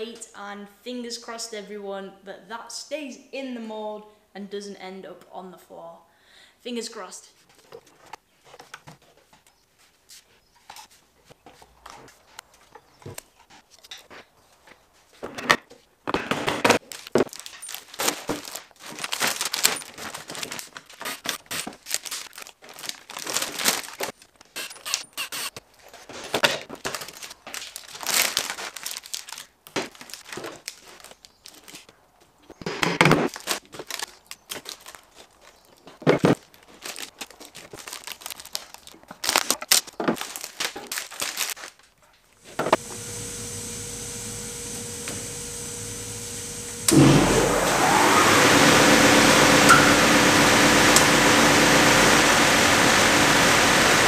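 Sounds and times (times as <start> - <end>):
plastic sheeting crinkling and tearing: 16.8 - 31.9, 32.6 - 42.8.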